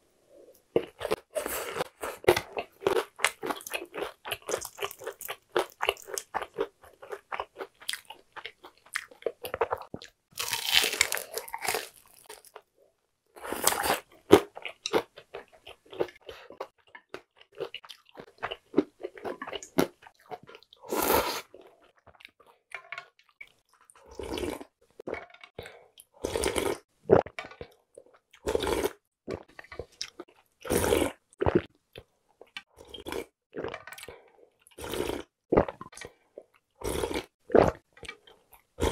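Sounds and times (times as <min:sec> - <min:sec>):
chewing crispy fried food: 0:00.6 - 0:12.7, 0:13.6 - 0:38.9
slurping noodles and broth: 0:20.8 - 0:21.5, 0:30.6 - 0:31.7.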